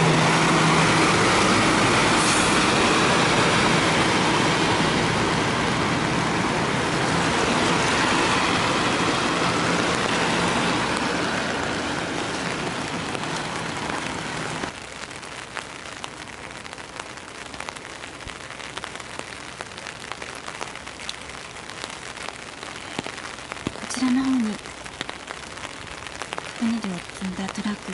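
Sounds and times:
tyre hiss on wet road: 0:00.0 - 0:06.2
truck engine hum: 0:00.0 - 0:14.8
steady rain: 0:00.0 - 0:27.9.

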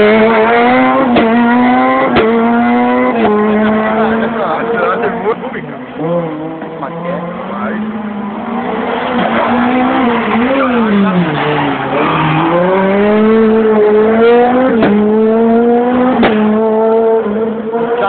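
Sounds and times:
rally car engine revving: 0:00.0 - 0:18.0.

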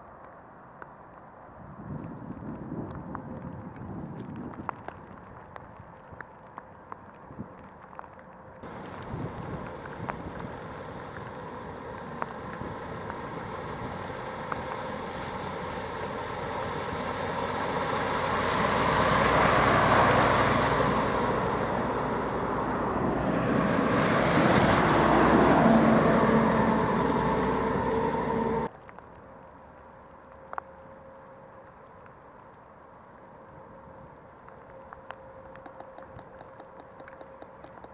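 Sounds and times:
tyres spraying through floodwater: 0:08.6 - 0:28.7
vehicle engine: 0:08.6 - 0:28.7.

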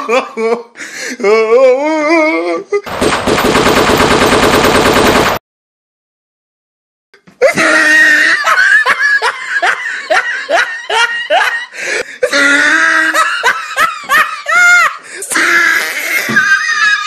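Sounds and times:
person laughing loudly: 0:00.0 - 0:02.9, 0:07.4 - 0:17.0.

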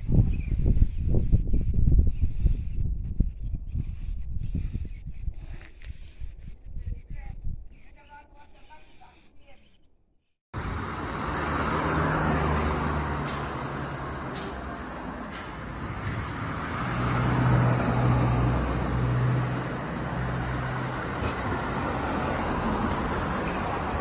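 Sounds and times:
cars driving past: 0:10.6 - 0:24.0.

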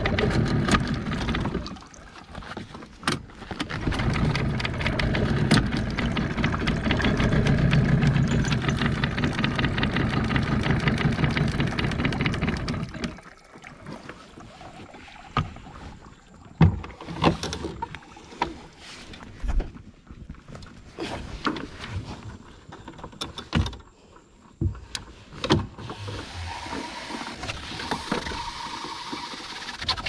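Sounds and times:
outboard motor running: 0:00.0 - 0:18.6, 0:25.6 - 0:30.0.

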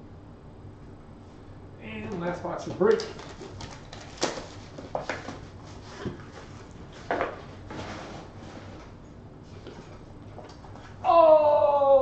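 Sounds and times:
packaging rustles: 0:02.8 - 0:08.9.

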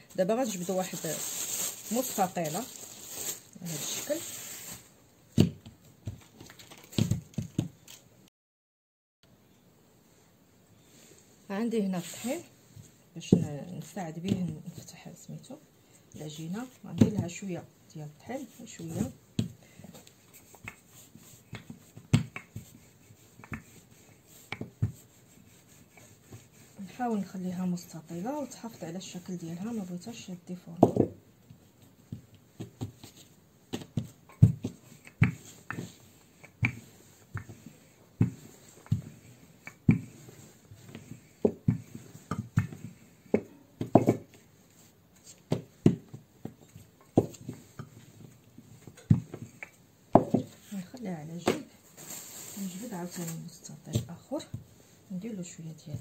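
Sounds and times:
soft rubbing of flour: 0:00.0 - 0:05.0, 0:10.0 - 0:15.6, 0:16.2 - 0:30.7, 0:31.4 - 0:56.0
hands tapping dough on table: 0:20.5 - 0:22.8, 0:23.4 - 0:23.8, 0:33.7 - 0:40.1, 0:41.0 - 0:44.4, 0:45.5 - 0:47.9, 0:48.9 - 0:50.6
rolling pin knocking on table: 0:30.8 - 0:31.2, 0:41.4 - 0:44.4, 0:50.1 - 0:50.6.

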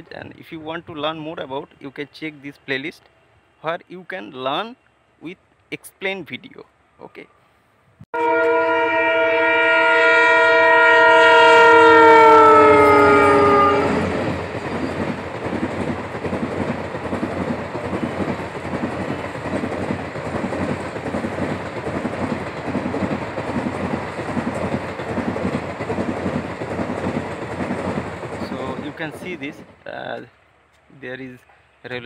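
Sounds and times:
locomotive horn: 0:08.2 - 0:14.2
train wheels clacking on rails: 0:14.0 - 0:30.2.

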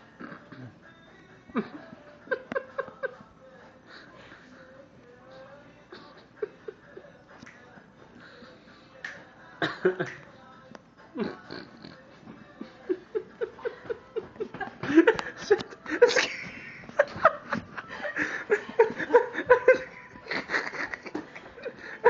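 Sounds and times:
people laughing: 0:01.5 - 0:04.5, 0:05.9 - 0:07.2, 0:12.4 - 0:22.0.

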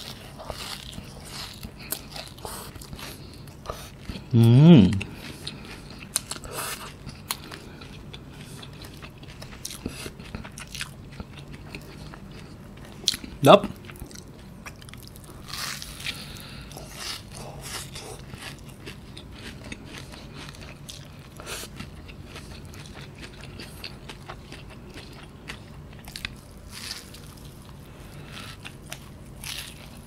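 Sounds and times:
crunchy pastry chewing: 0:00.0 - 0:04.3, 0:04.9 - 0:30.0
soft mouth sounds: 0:03.7 - 0:05.2.

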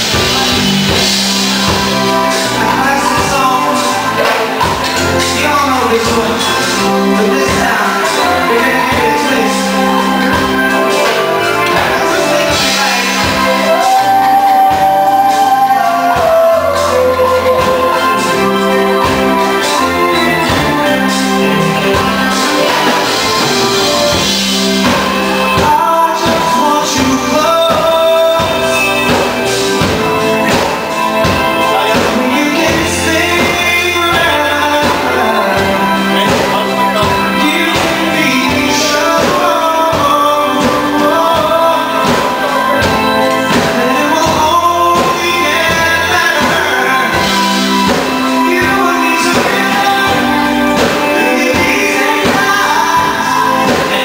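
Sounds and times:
live reggae band: 0:00.0 - 0:54.0
man singing: 0:00.0 - 0:54.0.

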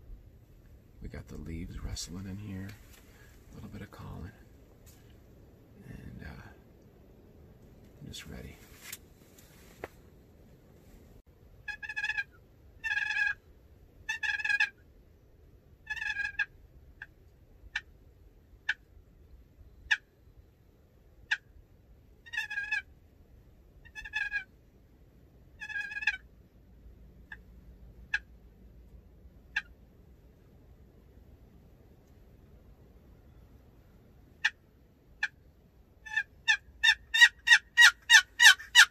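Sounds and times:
turkey gobbling: 0:11.6 - 0:13.4, 0:14.0 - 0:14.8, 0:15.8 - 0:18.0, 0:19.8 - 0:20.1, 0:21.2 - 0:21.5, 0:22.2 - 0:22.9, 0:23.8 - 0:24.5, 0:25.6 - 0:26.3, 0:28.1 - 0:28.4, 0:29.4 - 0:29.8, 0:35.2 - 0:35.4, 0:36.0 - 0:38.9.

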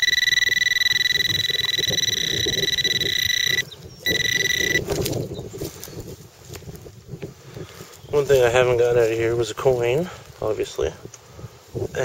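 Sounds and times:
metal detector high tone: 0:00.0 - 0:05.0.

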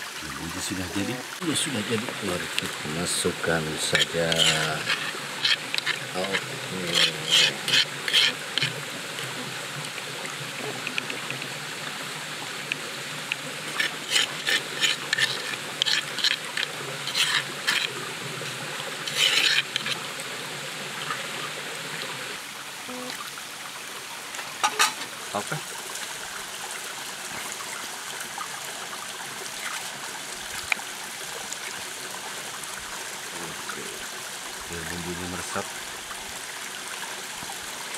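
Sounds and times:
steady background hiss: 0:00.0 - 0:14.4
metal spoon scraping pot: 0:02.5 - 0:08.8, 0:13.6 - 0:18.0, 0:19.0 - 0:20.0.

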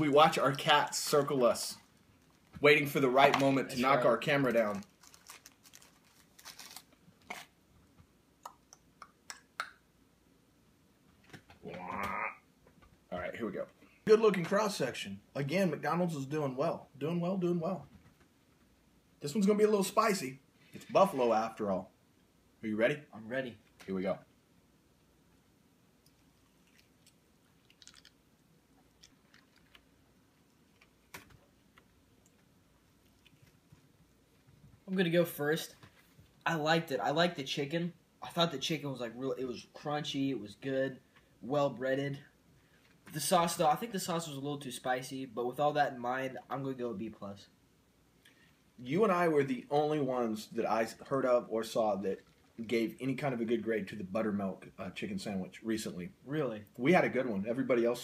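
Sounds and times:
paper wrapper rustling: 0:04.4 - 0:07.5
sandwich crackling broken open: 0:04.7 - 0:07.5
chewing and crunching sandwich: 0:26.2 - 0:31.1.

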